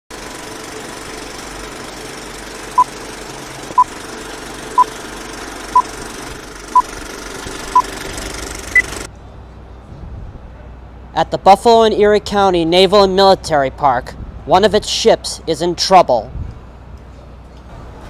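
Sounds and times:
film projector clatter with hiss: 0:00.1 - 0:09.1.

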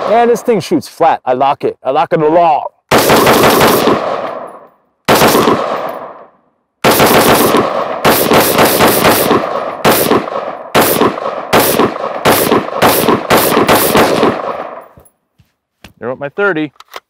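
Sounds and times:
gunshots with echo: 0:00.0 - 0:00.6, 0:02.9 - 0:15.0.

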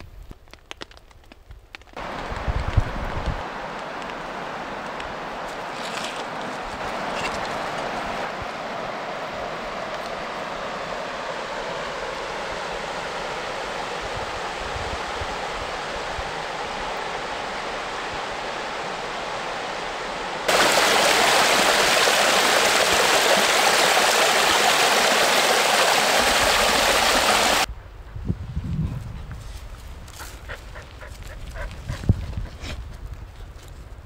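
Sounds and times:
river rapids rushing: 0:16.5 - 0:27.7.

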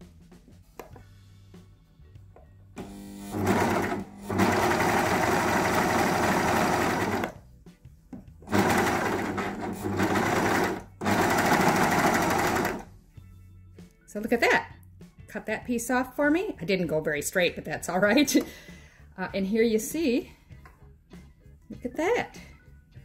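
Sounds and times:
serger sewing machine running: 0:03.2 - 0:07.4, 0:08.5 - 0:12.9.

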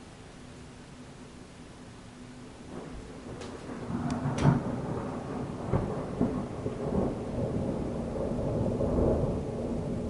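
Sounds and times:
heavy rain hissing: 0:00.0 - 0:10.0
thunder cracks and rumble: 0:02.7 - 0:10.0.

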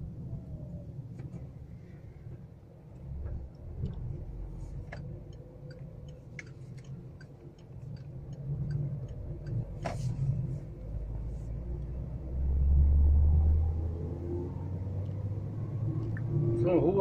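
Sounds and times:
car engine rumble: 0:00.0 - 0:17.0
road noise: 0:00.0 - 0:17.0
turn signal clicking: 0:02.9 - 0:10.0, 0:16.0 - 0:16.3.

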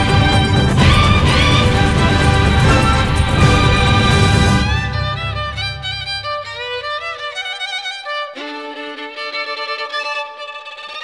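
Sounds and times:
low bass: 0:00.0 - 0:07.2
steady lower notes: 0:00.0 - 0:07.5
violin melody with vibrato: 0:00.0 - 0:11.0.

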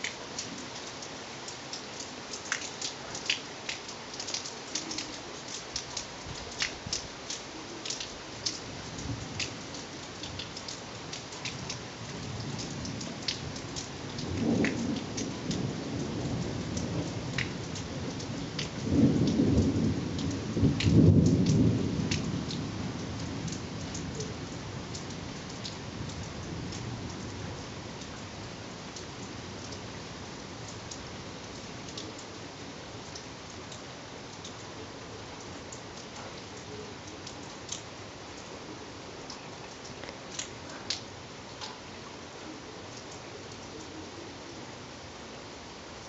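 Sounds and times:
large raindrops clicking: 0:00.0 - 0:46.0
rain falling: 0:00.0 - 0:46.0
rolling thunder: 0:14.1 - 0:23.5.

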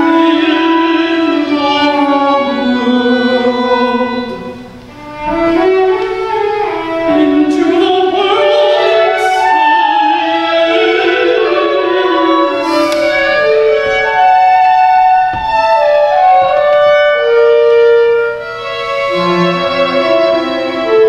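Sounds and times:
countertenor singing: 0:00.0 - 0:04.9, 0:05.6 - 0:21.0
chamber music ensemble: 0:00.0 - 0:21.0.

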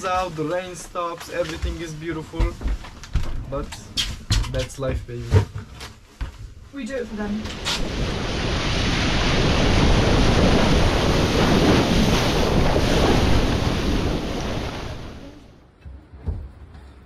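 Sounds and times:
wind buffeting microphone: 0:07.4 - 0:15.4
water rushing and splashing: 0:07.4 - 0:15.6.

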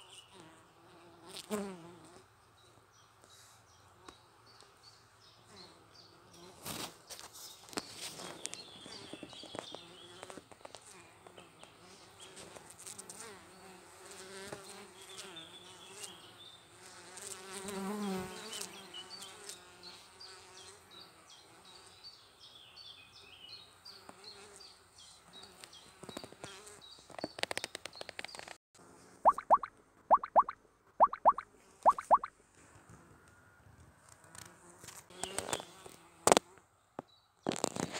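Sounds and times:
bee flying past: 0:00.1 - 0:02.3, 0:07.8 - 0:22.0.

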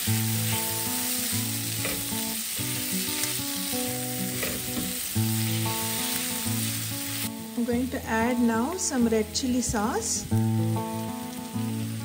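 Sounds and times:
food sizzling in hot oil: 0:00.0 - 0:12.0
soft background music: 0:00.4 - 0:12.0
spatula scraping a pan: 0:01.8 - 0:02.1, 0:04.2 - 0:05.6.

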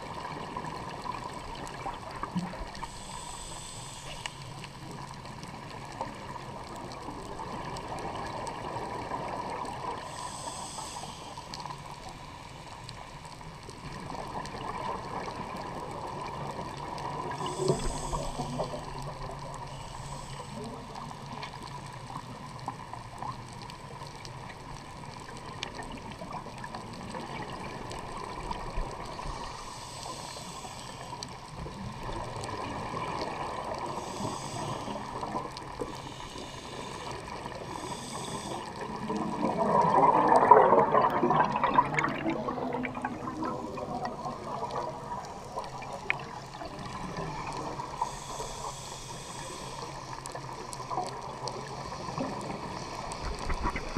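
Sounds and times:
underwater wash: 0:00.0 - 0:53.9
diver breathing through regulator: 0:02.7 - 0:04.8, 0:09.9 - 0:12.8, 0:17.3 - 0:21.4, 0:29.4 - 0:32.2, 0:33.0 - 0:39.9, 0:41.6 - 0:53.9
gurgling burst of exhaled bubbles: 0:39.1 - 0:44.8.

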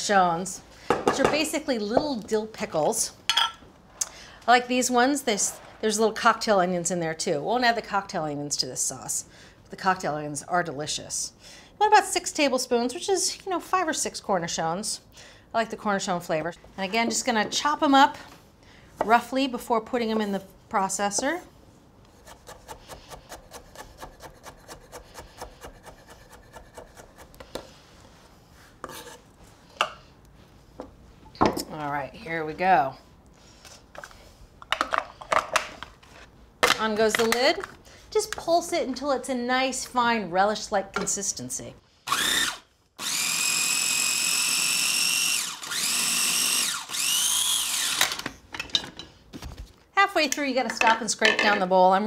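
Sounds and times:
knife blade scraping board: 0:22.2 - 0:27.6, 0:28.8 - 0:29.3
food processor motor whine: 0:42.1 - 0:48.2.

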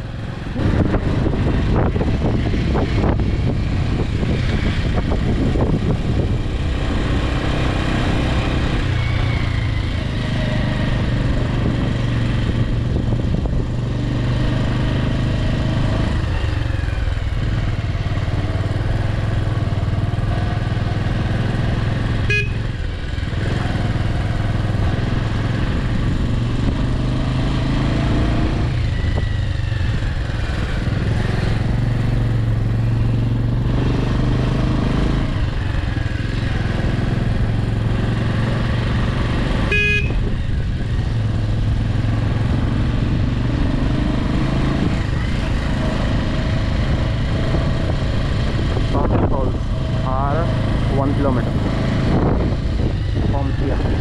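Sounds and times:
vehicle engine driving: 0:00.0 - 0:54.0.

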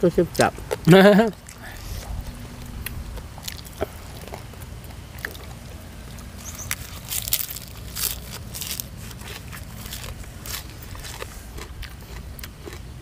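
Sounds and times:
leafy greens crunched by teeth: 0:00.4 - 0:13.0
leaves rustling when handled: 0:06.3 - 0:11.4.

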